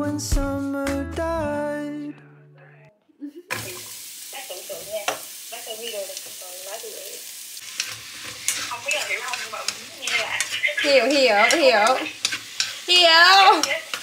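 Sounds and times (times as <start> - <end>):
food sizzling in a frying pan: 3.5 - 14.0
chopsticks clicking: 8.5 - 10.8.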